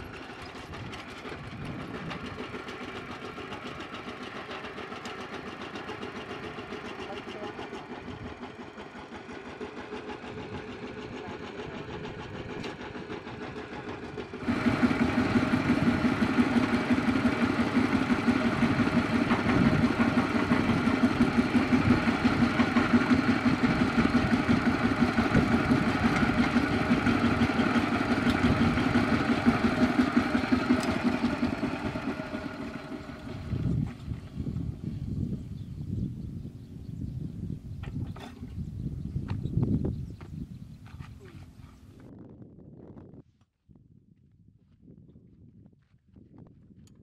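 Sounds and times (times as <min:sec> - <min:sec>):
walking tractor engine chugging: 0:00.0 - 0:34.9.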